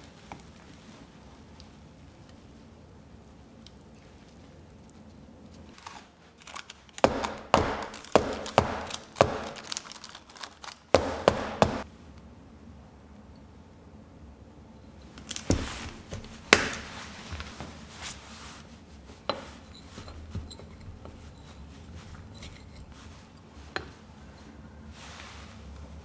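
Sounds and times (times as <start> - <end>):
spatula clinking and scraping: 19.3 - 24.0.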